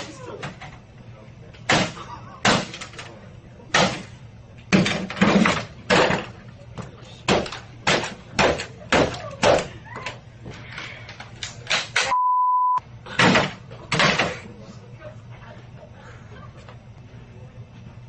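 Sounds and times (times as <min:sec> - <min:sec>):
one-tone bleep: 0:12.1 - 0:12.8.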